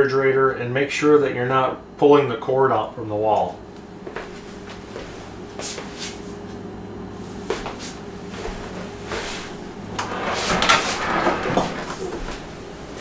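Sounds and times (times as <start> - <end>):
steady low hum: 0.0 - 13.0
refrigerator rolling and rattling: 8.6 - 13.0.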